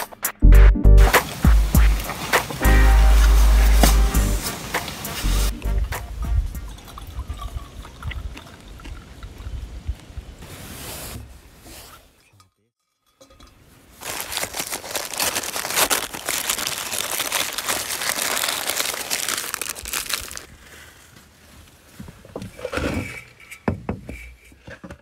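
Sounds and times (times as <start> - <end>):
drink pouring into metal mug: 6.6 - 9.5
jacket sleeve rustling on microphone: 10.4 - 12.2.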